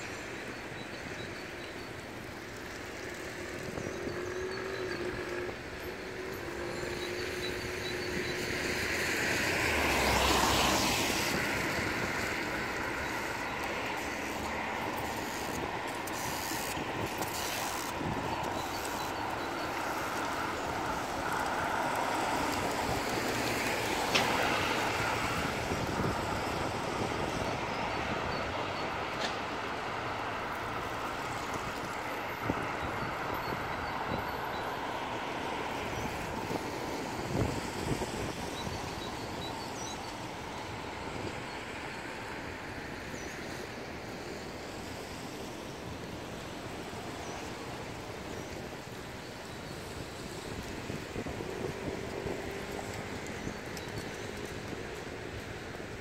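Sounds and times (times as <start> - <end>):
city street traffic: 0.0 - 56.0.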